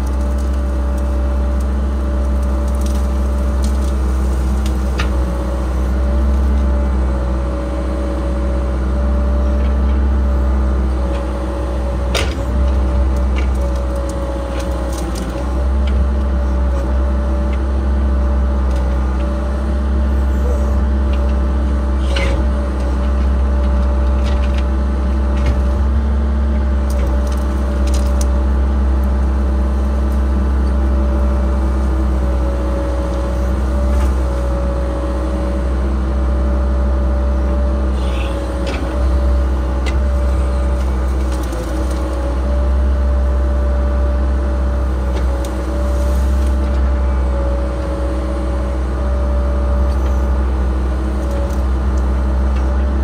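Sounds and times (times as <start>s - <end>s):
excavator diesel engine: 0.0s - 53.0s
sharp clicks and cracks: 26.9s - 28.3s.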